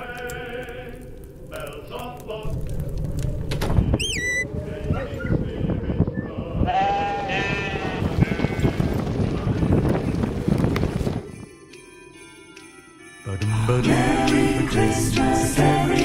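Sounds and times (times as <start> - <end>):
sheep bleating: 6.7 - 8.8.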